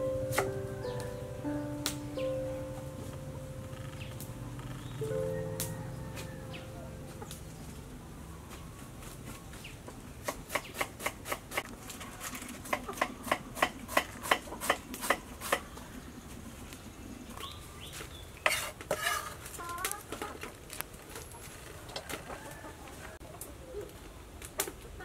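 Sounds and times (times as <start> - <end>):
chicken clucking: 3.0 - 10.0, 11.8 - 16.0, 19.5 - 20.6.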